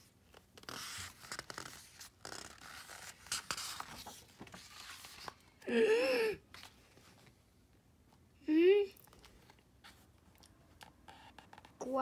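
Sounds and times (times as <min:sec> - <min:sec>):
book page turning: 0:00.3 - 0:05.5.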